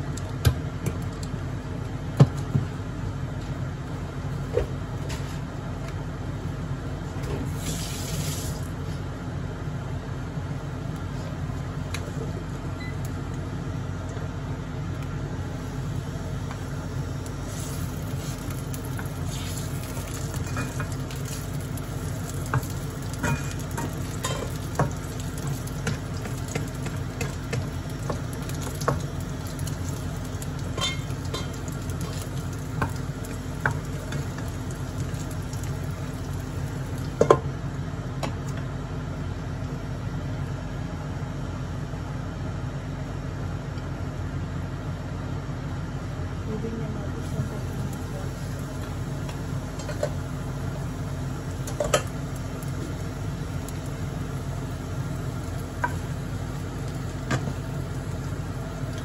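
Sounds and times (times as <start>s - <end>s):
steady low hum: 0.0s - 59.0s
patties sizzling in oil: 7.4s - 9.0s, 15.5s - 37.4s, 47.2s - 59.0s.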